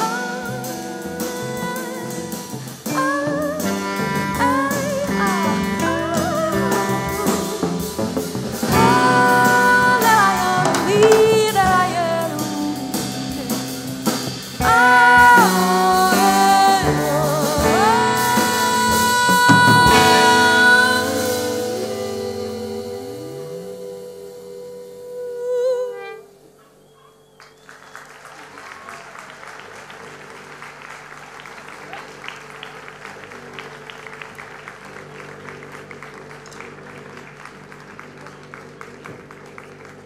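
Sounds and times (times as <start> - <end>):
guitar: 0.0 - 24.0
person singing long notes: 0.0 - 26.6
bass line: 0.0 - 26.8.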